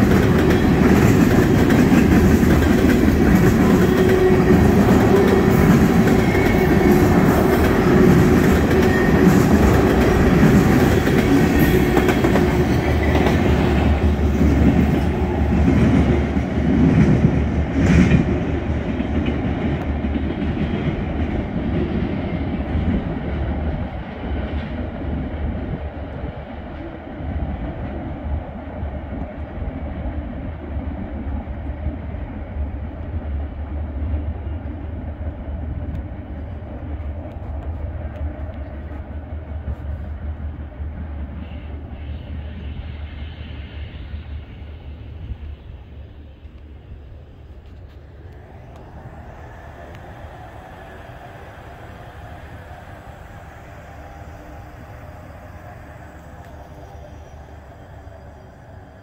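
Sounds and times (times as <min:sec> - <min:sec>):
freight train wheels clattering: 0:00.0 - 0:25.1.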